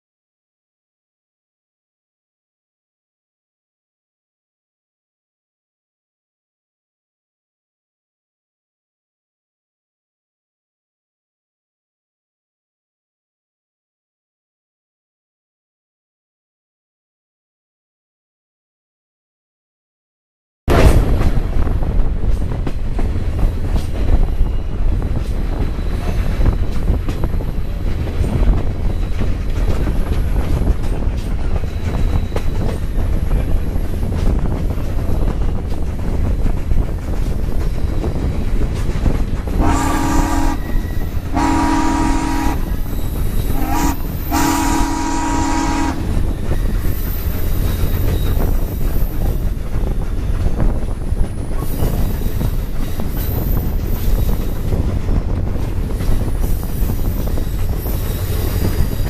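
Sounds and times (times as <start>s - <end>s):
train cars rumbling on rails: 20.7s - 59.0s
steam locomotive whistle: 39.5s - 46.3s.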